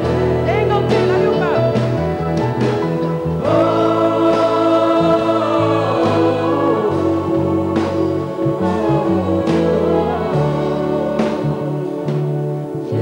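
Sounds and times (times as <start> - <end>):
live band playing: 0.0 - 13.0
children's choir singing: 3.2 - 13.0.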